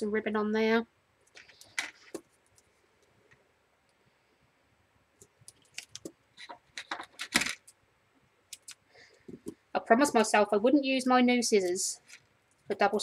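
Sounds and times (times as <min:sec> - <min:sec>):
crackling clicks of tape: 0:05.2 - 0:07.8, 0:08.5 - 0:08.8.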